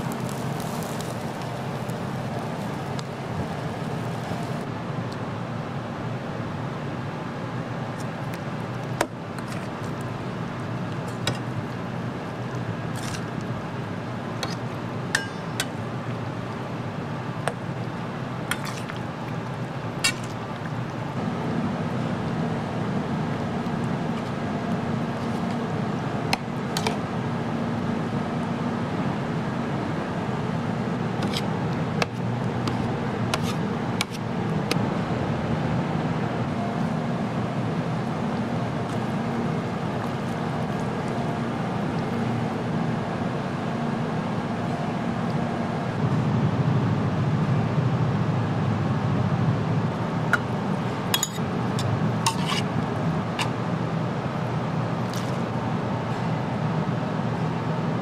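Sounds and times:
tableware clinking: 51.2s - 52.6s.

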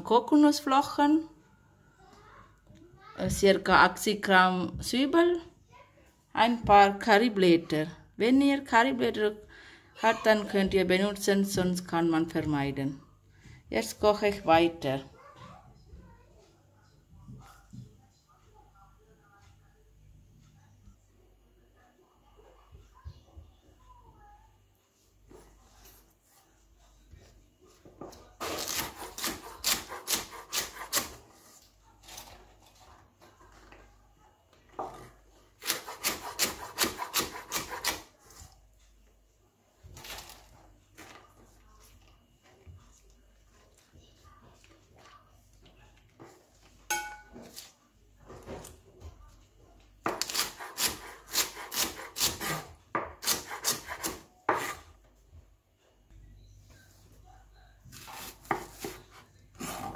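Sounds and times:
knife chopping on wooden board: 28.4s - 31.2s, 35.6s - 38.0s, 50.1s - 54.8s, 57.9s - 59.9s.

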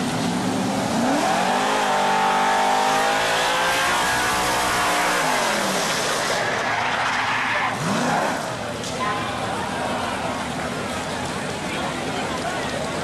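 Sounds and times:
vehicle engine accelerating: 0.0s - 8.9s.

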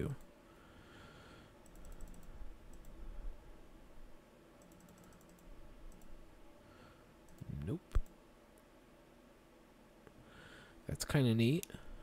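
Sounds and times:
computer mouse clicking: 1.6s - 3.0s, 4.6s - 6.2s, 7.2s - 8.2s.

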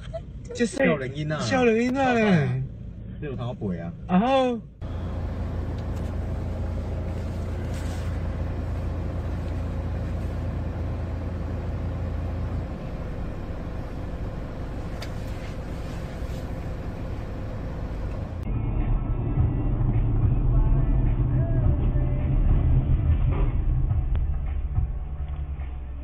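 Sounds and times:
vehicle engine and road noise: 0.0s - 26.0s
low drone: 12.4s - 26.0s.

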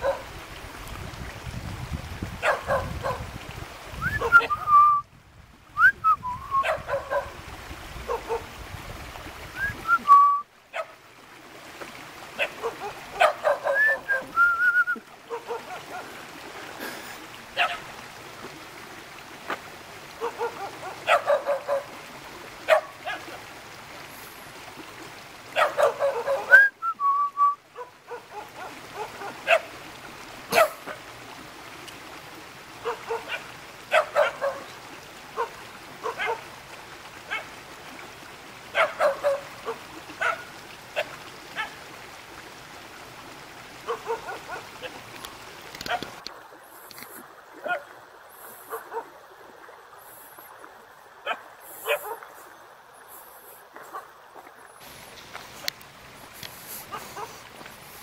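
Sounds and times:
dogs barking: 0.0s - 0.3s, 2.4s - 3.2s, 6.6s - 7.4s, 8.1s - 8.5s, 10.7s - 11.0s, 12.4s - 14.3s, 15.3s - 16.2s, 17.6s - 17.9s, 20.2s - 21.9s, 22.6s - 23.4s, 25.6s - 26.6s, 27.8s - 29.7s, 30.5s - 31.0s, 32.8s - 34.8s, 35.4s - 36.5s, 37.3s - 37.5s, 38.7s - 41.8s, 43.8s - 45.0s, 45.8s - 46.2s, 47.6s - 47.9s, 48.7s - 49.1s, 51.2s - 52.4s, 53.8s - 54.1s, 56.9s - 57.4s.

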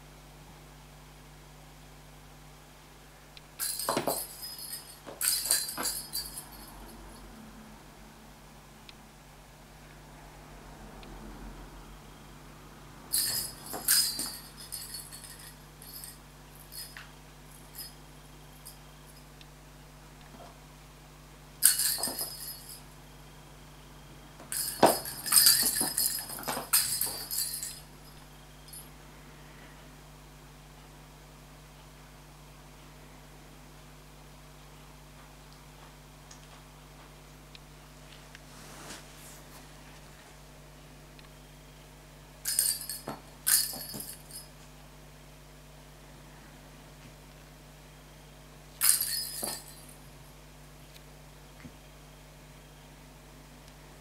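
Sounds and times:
toy ball clattering on hard floor: 3.6s - 6.9s, 13.1s - 17.9s, 21.6s - 22.8s, 24.4s - 28.8s, 42.5s - 44.5s, 48.8s - 50.0s
plastic ball toy rattling: 24.5s - 27.8s.

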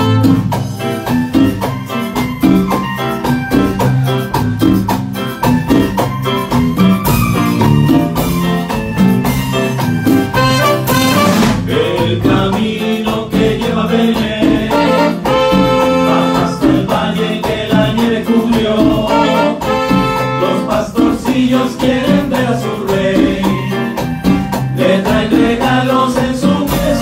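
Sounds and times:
trumpet: 0.0s - 0.6s, 10.3s - 11.8s, 14.7s - 16.8s, 19.1s - 20.9s
saxophone: 0.0s - 1.7s, 10.2s - 11.7s, 14.7s - 16.9s, 19.1s - 20.9s
live latin band playing: 0.0s - 27.0s.

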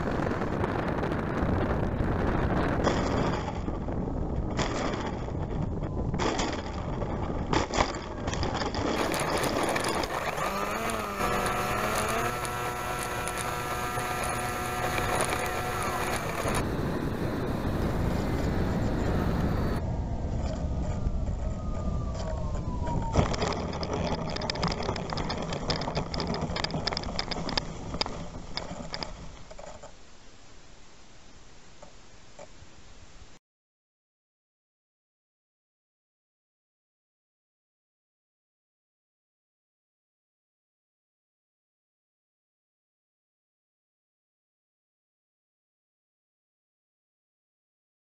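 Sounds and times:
wind rumble: 0.0s - 29.6s
wheels rattling over rough ground: 0.0s - 30.2s
landing gear hitting ground: 0.1s - 16.7s
electric motor whine: 8.9s - 28.1s.

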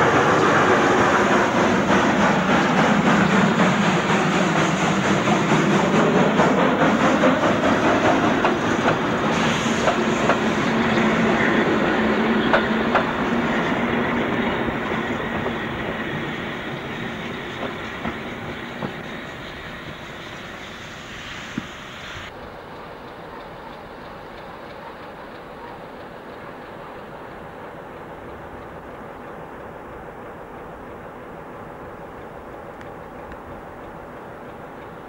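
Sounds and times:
steam hissing from cylinders: 0.0s - 29.5s
wheels clicking over rail joints: 0.1s - 20.5s, 21.6s - 35.0s.

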